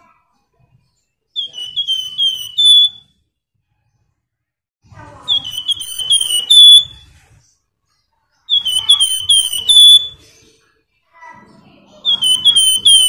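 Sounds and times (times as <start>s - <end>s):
bird whistling song: 1.4s - 3.2s, 5.2s - 7.2s, 8.5s - 10.3s, 12.0s - 13.0s.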